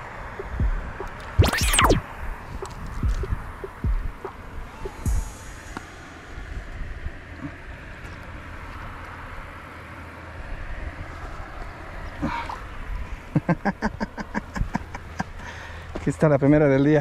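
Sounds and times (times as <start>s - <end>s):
wind rumbling on microphone: 0.0s - 7.9s
sharp rattling pulses: 0.4s - 6.6s.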